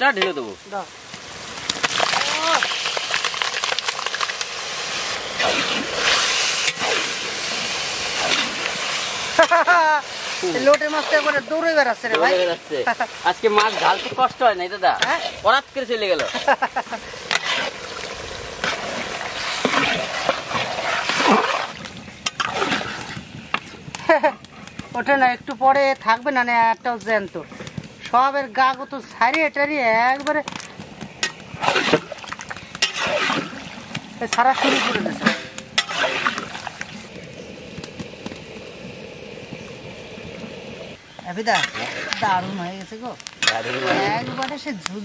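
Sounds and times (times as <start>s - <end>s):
fish sizzling in hot oil: 0.0s - 45.0s
spatula stirring in pan: 5.2s - 24.9s, 30.2s - 37.0s.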